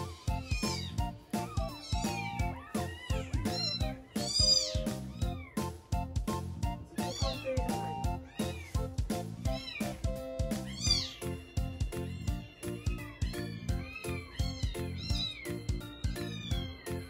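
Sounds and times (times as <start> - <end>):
background music with a beat: 0.0 - 17.0
kitten mewing: 0.4 - 5.6, 6.9 - 8.8, 10.6 - 11.4.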